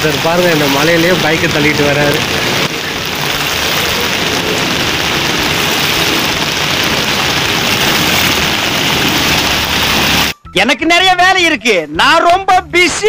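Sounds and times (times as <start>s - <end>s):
heavy rain on flooded street: 0.0s - 10.4s.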